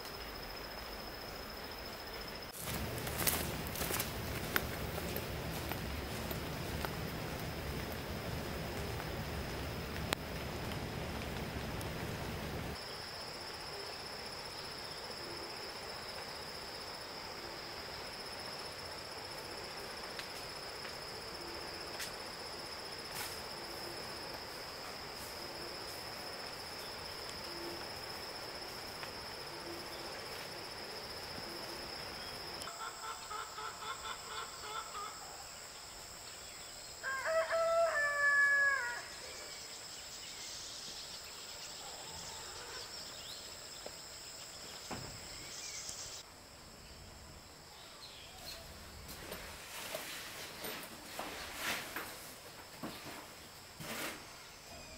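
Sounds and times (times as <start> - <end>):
insects droning: 0.0 - 54.9
rooster crowing: 37.0 - 39.4.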